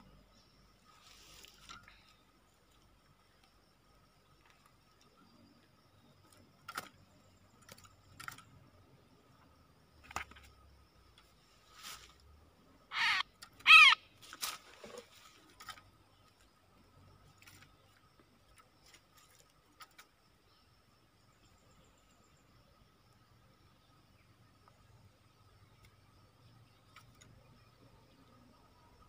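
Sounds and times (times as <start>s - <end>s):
bird harsh squawks: 12.9s - 14.1s.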